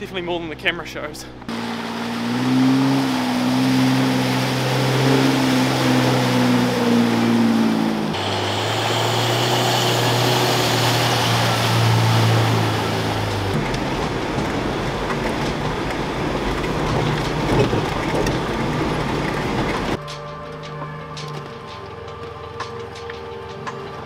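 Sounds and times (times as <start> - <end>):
off-road vehicle engines under throttle: 0.0 - 24.0
water splashing around wheels: 0.0 - 24.0.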